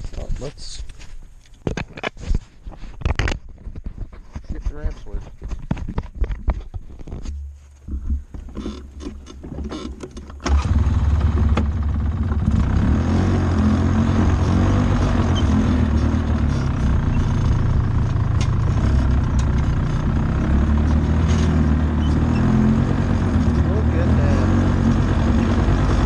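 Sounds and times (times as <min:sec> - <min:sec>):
atv engine running: 0:10.4 - 0:26.0.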